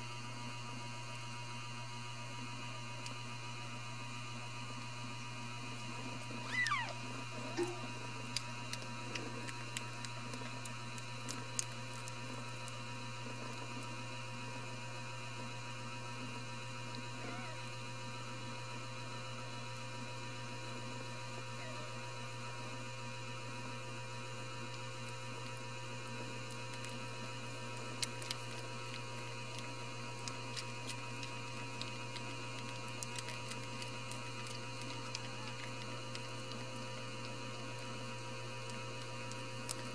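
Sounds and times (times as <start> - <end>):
electrical mains hum: 0.0 - 39.9
kitten squeaking: 6.4 - 7.9.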